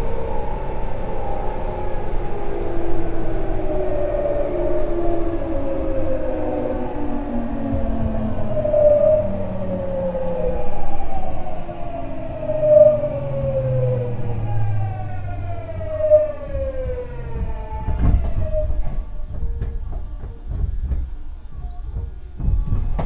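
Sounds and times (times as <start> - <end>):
train motors whining: 0.0 - 23.0
low knocks: 14.0 - 23.0.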